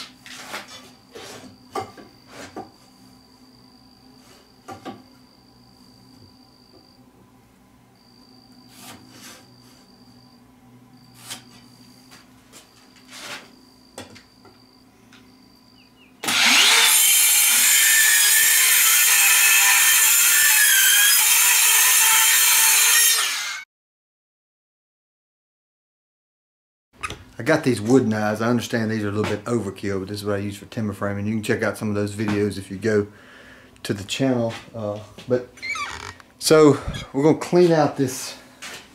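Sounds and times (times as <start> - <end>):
circular saw cutting wood: 16.2 - 23.7.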